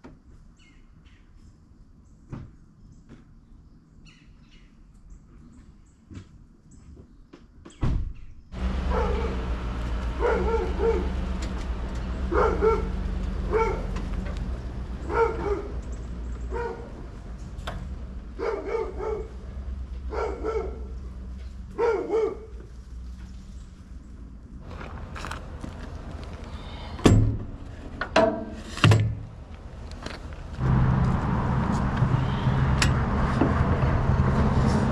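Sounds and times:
truck engine running: 8.6s - 22.0s, 24.6s - 28.0s, 29.2s - 34.9s
dog barking: 8.8s - 14.1s, 15.0s - 15.8s, 16.5s - 17.0s, 18.4s - 19.4s, 20.1s - 21.0s, 21.7s - 22.6s.

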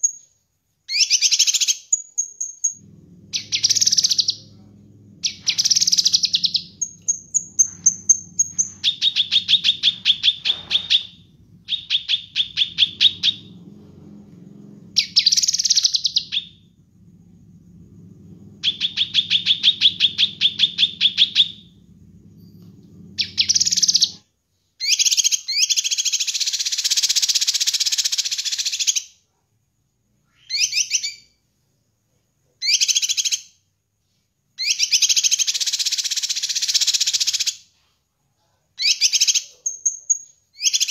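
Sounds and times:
low hum: 2.8s - 24.2s
bird singing whistles and trills: 18.6s - 21.7s.

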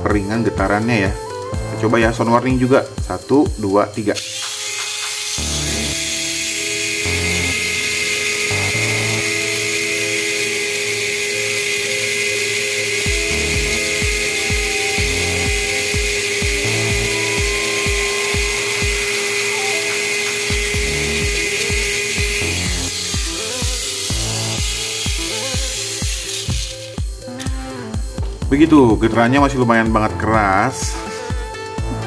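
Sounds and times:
background music with beat: 0.0s - 32.0s
toy car motor whining: 3.9s - 28.1s.

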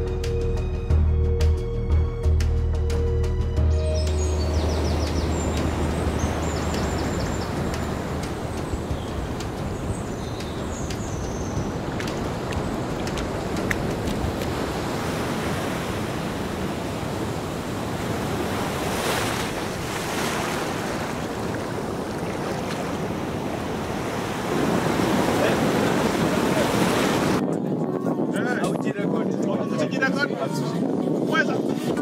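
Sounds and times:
wind on microphone: 4.1s - 32.0s
waves breaking on beach: 4.2s - 27.4s.

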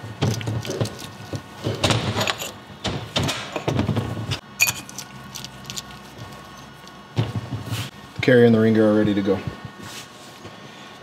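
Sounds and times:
metal parts knocking and scraping: 0.2s - 6.8s.

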